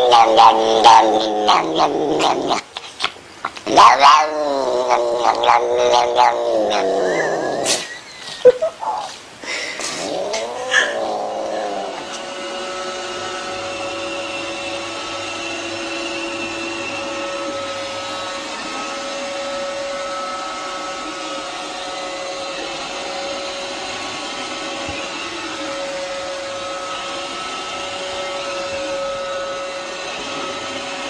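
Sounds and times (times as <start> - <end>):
cat meowing: 0.0 - 7.5, 10.0 - 12.1
robot vacuum cleaner humming: 4.6 - 31.0.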